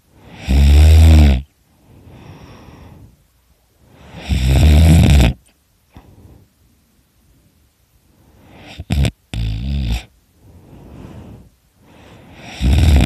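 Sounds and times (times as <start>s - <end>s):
person snoring loudly: 0.3s - 1.5s, 4.1s - 5.4s, 8.6s - 10.1s, 12.4s - 13.0s
soft breath: 1.7s - 4.4s, 5.9s - 8.9s, 10.0s - 13.0s.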